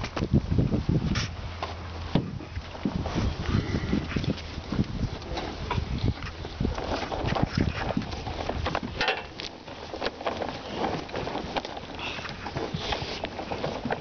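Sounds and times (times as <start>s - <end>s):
cattle crunching and chewing feed: 0.0s - 14.0s
hooves on hard dirt: 0.0s - 14.0s.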